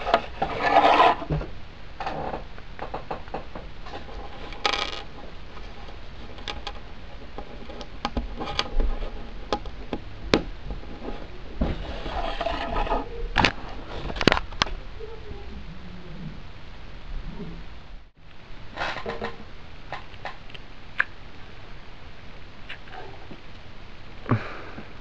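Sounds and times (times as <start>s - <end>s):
scraping rustles: 0.0s - 9.9s, 10.6s - 16.4s
plastic bricks clicking: 4.4s - 5.1s.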